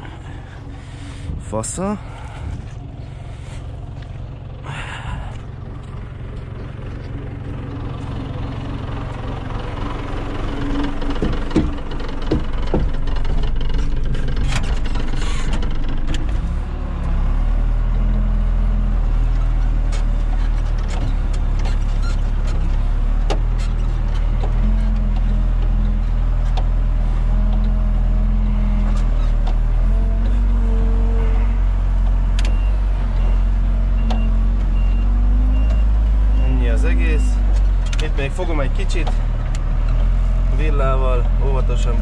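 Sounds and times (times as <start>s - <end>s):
diesel engine running: 0.0s - 42.0s
knocks and clicks: 10.8s - 16.4s.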